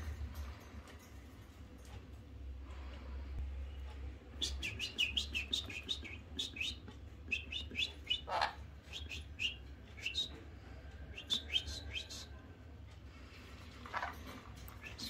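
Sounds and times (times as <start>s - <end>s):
parrot chirping: 4.4s - 10.3s, 13.9s - 14.2s.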